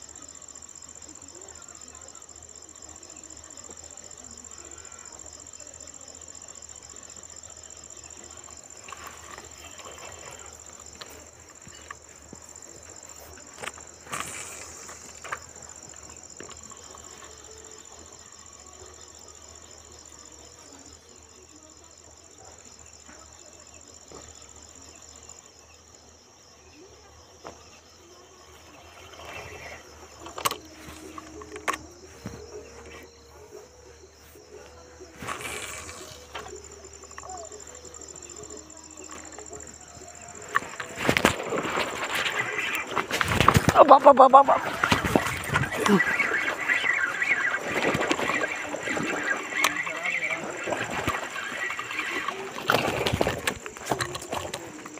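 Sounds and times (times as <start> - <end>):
insect chorus chirring: 0.0 - 54.9
rustles: 7.4 - 19.0, 34.2 - 54.9.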